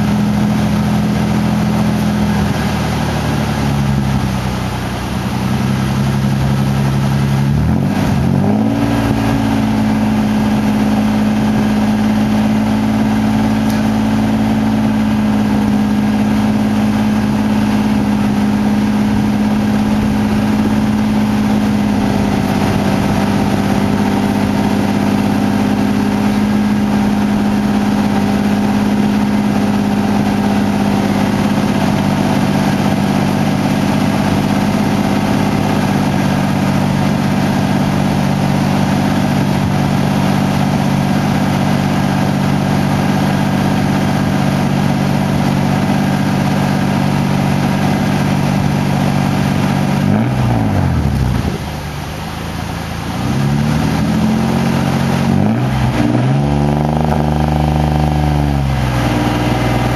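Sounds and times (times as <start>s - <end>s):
truck engine running at tailpipe: 0.0s - 59.9s.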